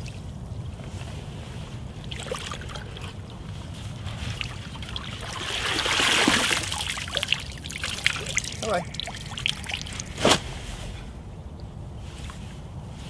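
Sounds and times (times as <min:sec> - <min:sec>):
water sloshing and splashing: 0:00.0 - 0:11.0
steady low rumble: 0:06.9 - 0:13.0.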